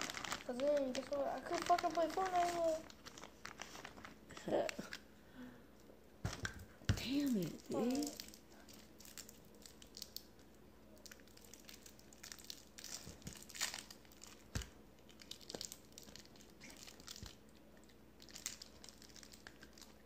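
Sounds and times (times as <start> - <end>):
faint rustling and crinkling: 0.0 - 5.1.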